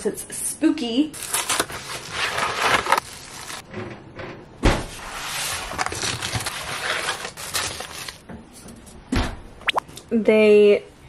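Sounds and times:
cardboard boxes torn open: 1.2 - 3.6, 5.7 - 8.2
cardboard rustling and crinkling: 1.2 - 3.7, 5.0 - 8.2
thump: 4.6 - 5.0.

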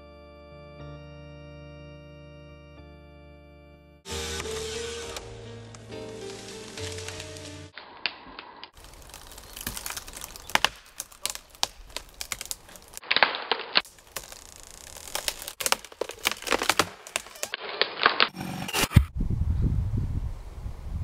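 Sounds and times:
wood cracking and splintering: 4.1 - 19.0.

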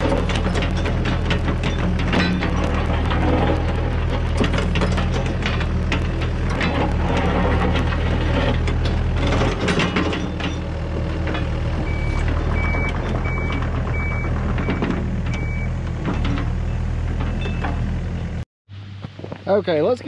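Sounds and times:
excavator diesel engine running: 0.0 - 18.4
backup alarm beeps: 11.8 - 14.8, 15.4 - 15.7.

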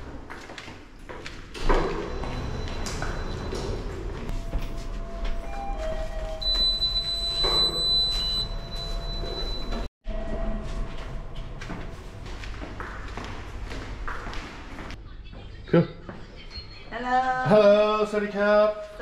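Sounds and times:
elevator humming and whining: 1.5 - 14.0.

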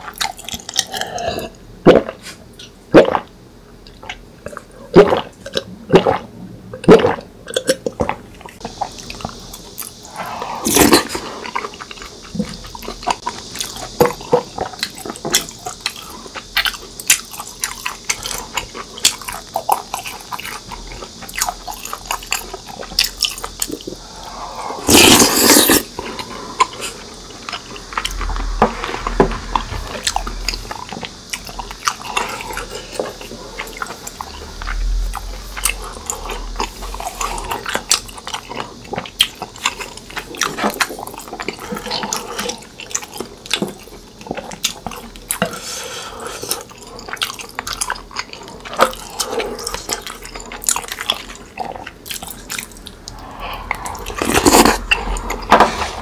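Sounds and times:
loud rush of noise: 23.8 - 32.1, 33.2 - 37.8, 52.4 - 56.0
chewing and biting food: 46.5 - 53.0.

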